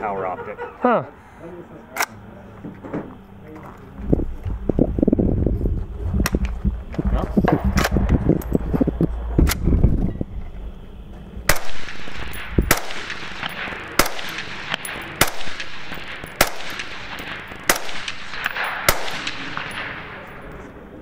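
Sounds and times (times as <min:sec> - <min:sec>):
suppressed rifle shots with echo: 0:11.5 - 0:20.4.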